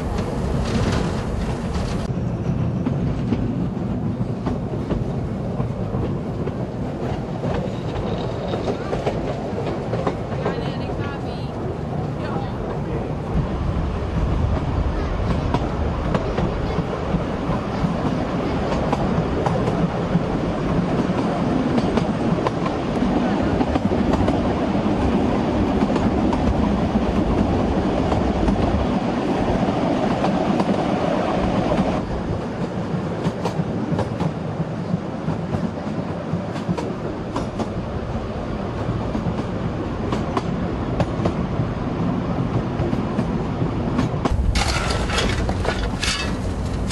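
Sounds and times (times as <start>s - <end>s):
wheels clicking over rail joints: 0.0s - 2.1s, 42.8s - 46.9s
steam train rumble: 0.0s - 46.9s.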